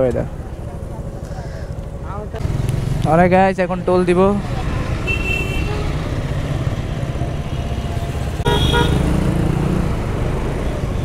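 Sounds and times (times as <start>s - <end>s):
traffic: 0.0s - 11.0s
motorcycle engine running: 2.0s - 3.4s
vehicle horn toot: 5.0s - 6.0s, 8.4s - 9.1s.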